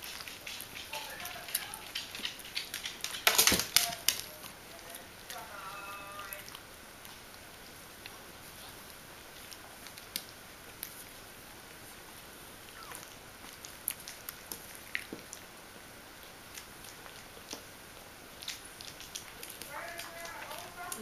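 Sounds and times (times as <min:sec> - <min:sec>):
puppy squeak: 0:12.7 - 0:13.2.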